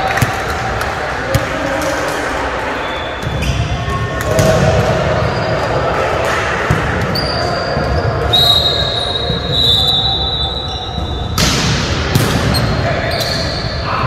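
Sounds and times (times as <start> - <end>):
players' voices: 0.0 - 14.0
volleyball ball contacts: 6.0 - 13.6.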